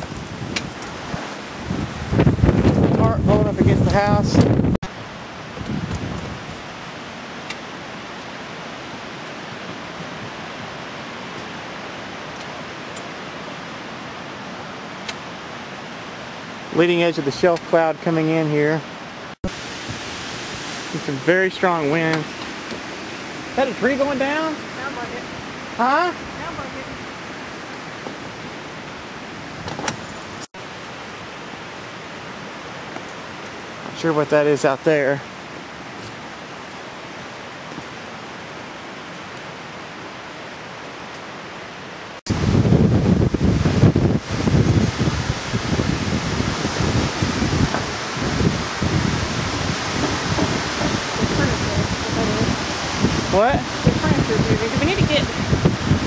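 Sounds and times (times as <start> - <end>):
strong wind rushing: 0.0 - 6.8, 42.3 - 56.0.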